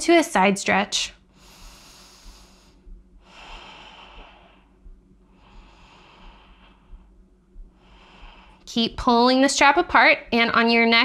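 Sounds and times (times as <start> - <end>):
woman breathing slowly: 1.2 - 8.7.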